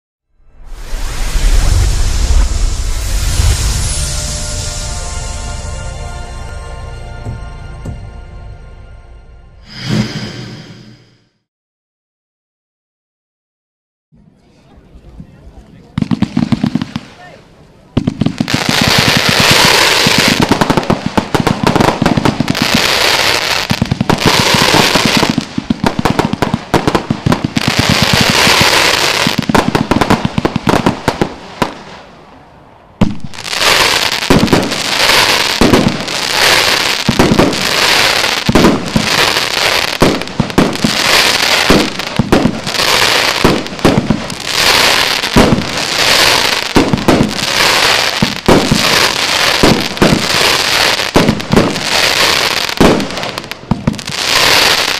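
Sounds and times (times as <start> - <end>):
fireworks launching and bursting: 0.4 - 6.2, 9.6 - 11.3, 15.9 - 17.3, 18.0 - 32.3, 33.0 - 54.9
fireworks crackle: 0.4 - 6.3, 18.0 - 32.1, 33.0 - 54.9.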